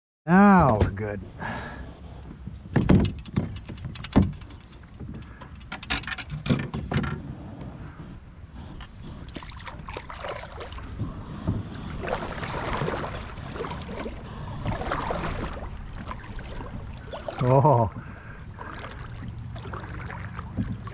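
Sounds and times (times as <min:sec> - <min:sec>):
water swishing along hull: 0:01.1 - 0:20.9
gear clicking and rattling on kayak: 0:02.0 - 0:07.8, 0:08.7 - 0:20.9.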